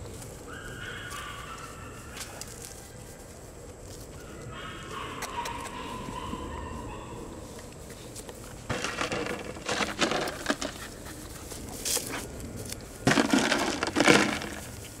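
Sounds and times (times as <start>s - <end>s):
puppies scuffling and play-fighting: 7.4s - 15.0s.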